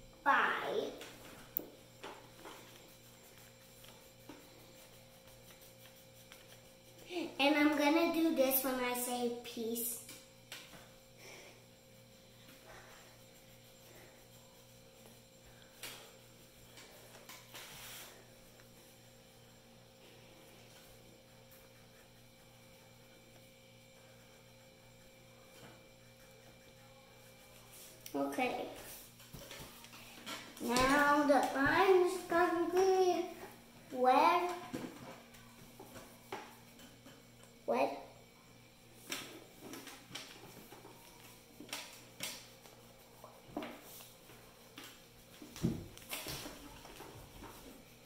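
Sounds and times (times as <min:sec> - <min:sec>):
faint electrical mains hum: 0:00.0 - 0:48.0
crayon scratching on paper: 0:02.3 - 0:07.0, 0:20.7 - 0:29.9.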